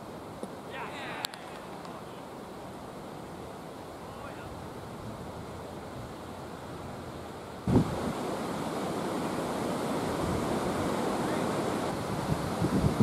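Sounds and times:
wind buffeting microphone: 4.3 - 13.0.

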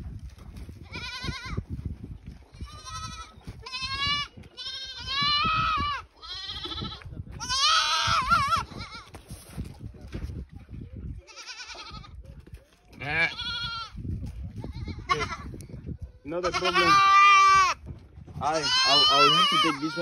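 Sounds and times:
goat kids bleating: 0.8 - 1.6, 2.5 - 9.2, 11.2 - 12.2, 13.0 - 17.8, 18.4 - 20.0
scuffing and handling noise: 8.9 - 10.6.

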